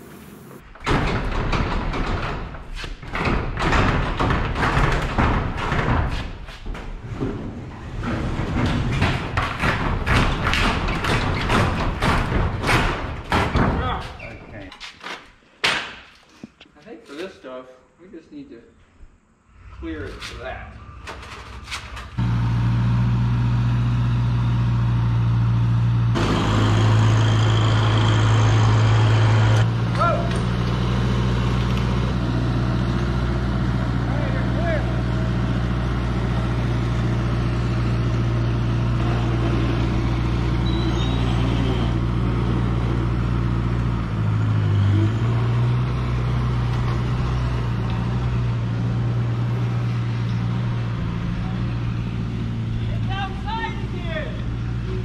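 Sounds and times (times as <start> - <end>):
metal hangar doors rattling: 0.6 - 15.3.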